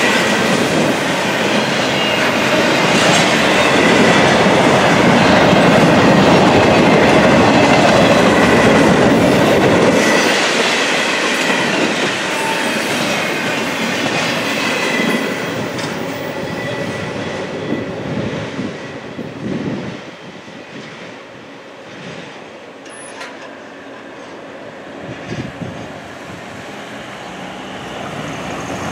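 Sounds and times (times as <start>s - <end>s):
freight train rolling on rails: 0.0s - 28.9s
faint high squeal: 16.1s - 19.2s.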